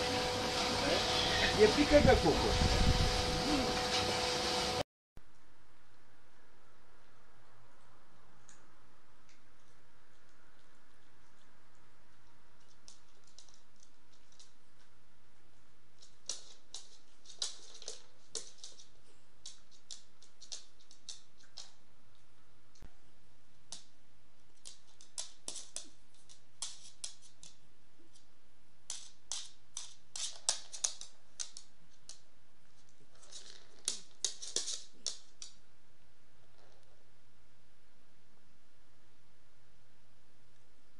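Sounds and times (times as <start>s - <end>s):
dog claws clicking on wooden floor: 9.3s - 14.9s, 15.9s - 22.3s, 24.5s - 35.6s.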